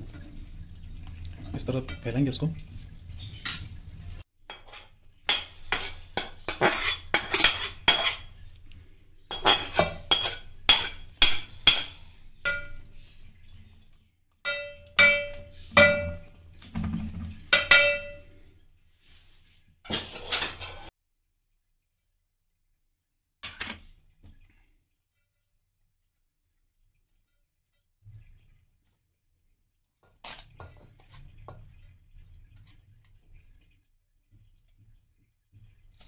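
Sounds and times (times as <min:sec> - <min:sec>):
metal spoon scraping metal pot: 0:04.5 - 0:08.4, 0:09.3 - 0:12.9, 0:19.9 - 0:20.9.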